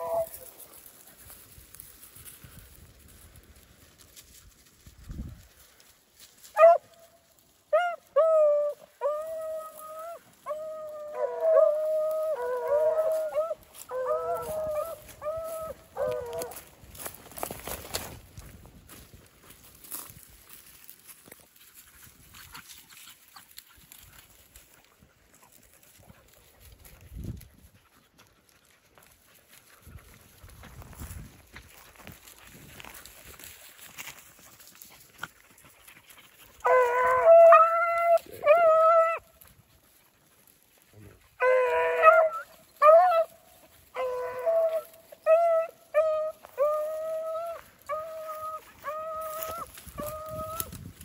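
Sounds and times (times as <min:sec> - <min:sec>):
hounds baying: 0:00.0 - 0:01.4, 0:06.5 - 0:07.1, 0:07.7 - 0:18.1, 0:33.9 - 0:50.8
rustling in dry grass: 0:00.0 - 0:51.0
small crackles: 0:00.0 - 0:51.0.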